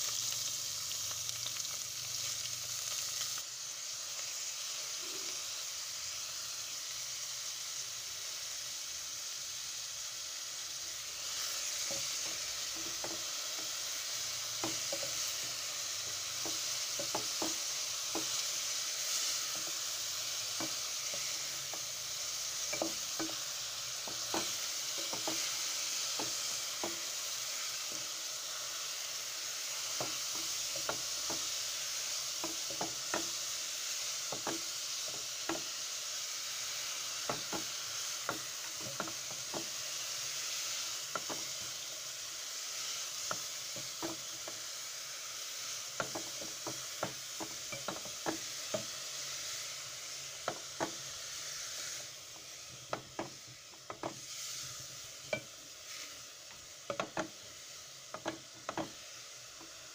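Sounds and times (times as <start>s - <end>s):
cabbage sizzling in hot oil: 0.0s - 59.9s
wooden spoon knocking on pot: 16.4s - 18.4s, 22.7s - 23.4s, 24.0s - 27.1s, 32.4s - 33.4s, 34.3s - 35.7s, 43.3s - 44.6s, 46.0s - 48.9s, 50.4s - 51.0s, 52.9s - 54.2s, 56.9s - 57.4s, 58.1s - 59.0s.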